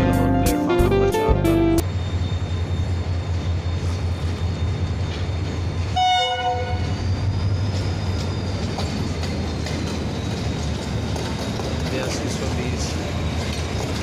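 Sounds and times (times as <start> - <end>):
locomotive engine rumble: 0.0 - 14.0
train horn blast: 6.0 - 6.9.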